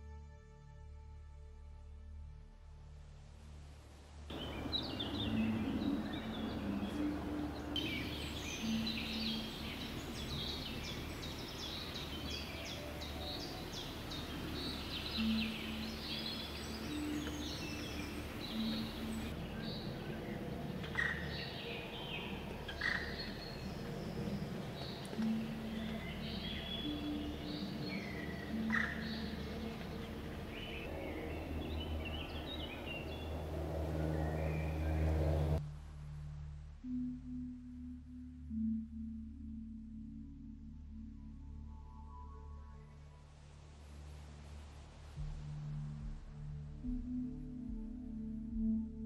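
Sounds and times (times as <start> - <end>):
soft music: 0.0 - 49.0
small birds chirping: 4.3 - 35.6.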